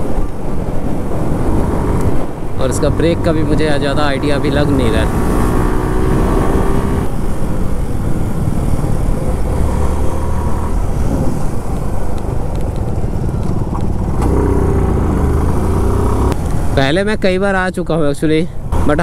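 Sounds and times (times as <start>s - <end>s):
wind and road noise: 0.0s - 19.0s
motorcycle engine: 4.2s - 16.5s.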